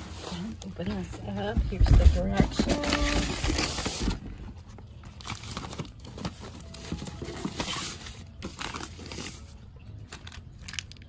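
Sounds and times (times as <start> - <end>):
paper rustling: 1.8 - 4.2.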